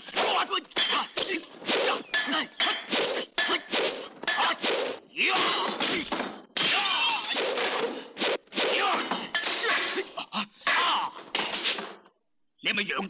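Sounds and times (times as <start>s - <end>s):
fighters shouting: 0.0s - 7.2s, 8.6s - 11.3s
wooden poles clashing: 0.1s - 10.1s.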